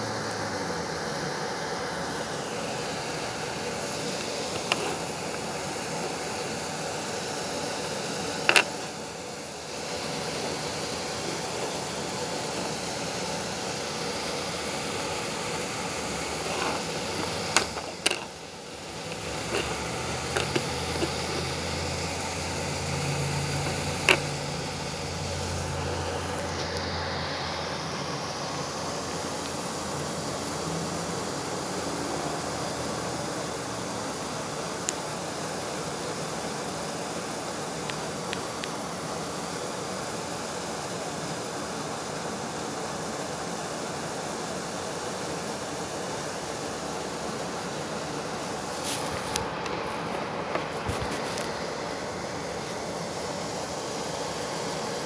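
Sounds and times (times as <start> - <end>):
sharp clicks and knocks: 8.4 - 8.8, 16.5 - 18.3, 19.1 - 21.5.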